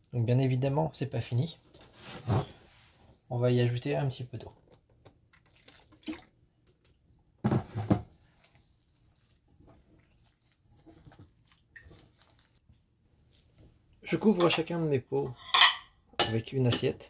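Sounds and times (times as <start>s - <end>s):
water pouring into bowl: 5.4s - 6.3s
hands kneading dough: 8.0s - 15.0s.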